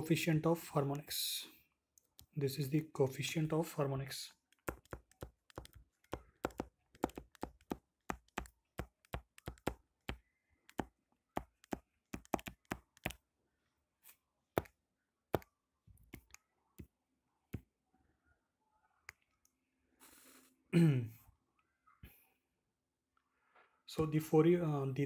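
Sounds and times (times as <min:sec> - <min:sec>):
stylus clicking on tablet screen: 0:01.9 - 0:02.4, 0:04.4 - 0:13.3, 0:14.5 - 0:17.7.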